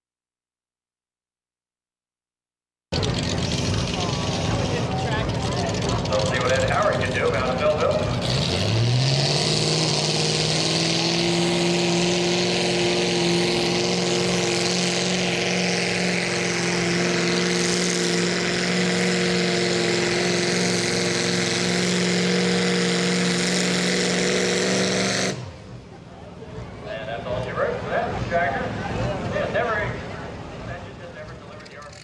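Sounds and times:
tractor engine at full throttle: 2.9s - 32.0s.

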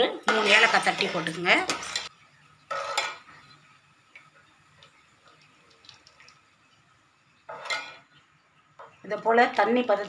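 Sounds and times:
metal spatula scraping pan: 0.2s - 2.1s, 2.7s - 3.3s, 7.5s - 8.1s.

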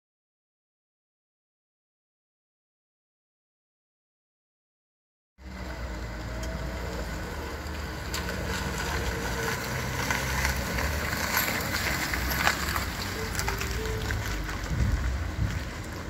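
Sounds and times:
street ambience: 5.4s - 16.0s
wind rumbling on microphone: 8.7s - 16.0s.

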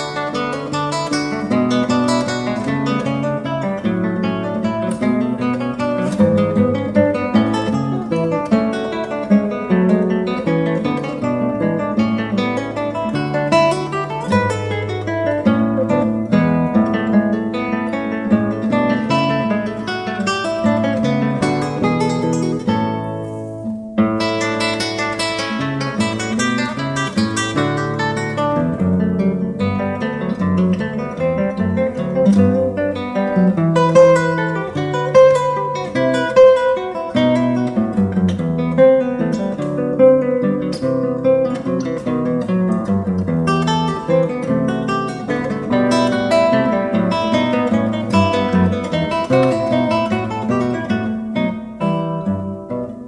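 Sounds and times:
acoustic guitar music: 0.0s - 53.0s.

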